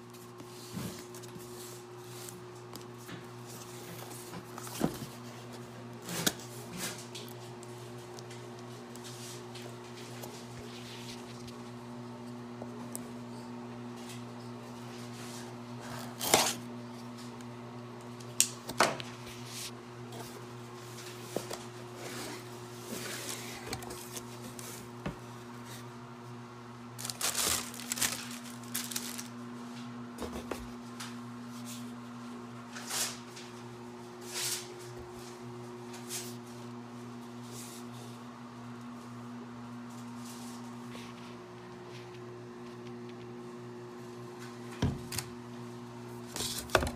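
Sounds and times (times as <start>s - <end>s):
plastic wrapping crinkling: 27.0s - 29.5s.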